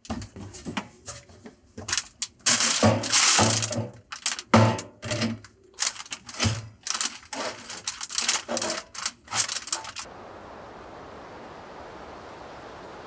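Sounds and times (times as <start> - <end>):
foil insulation crinkling: 1.9 - 10.1
steady hiss: 10.0 - 13.0.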